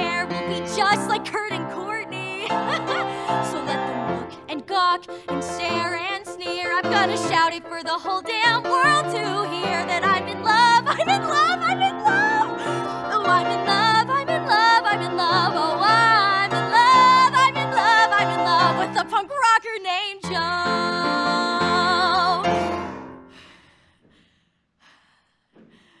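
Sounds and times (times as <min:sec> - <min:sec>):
woman singing: 0:00.0 - 0:22.8
piano accompaniment: 0:00.0 - 0:23.4.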